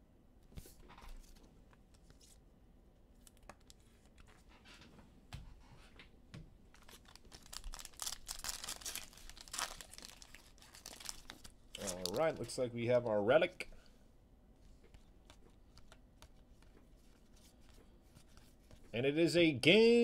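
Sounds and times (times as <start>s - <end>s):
cards clicking and rustling: 6.8s - 12.5s, 14.8s - 18.9s
wrappers tearing and crinkling: 6.8s - 12.5s.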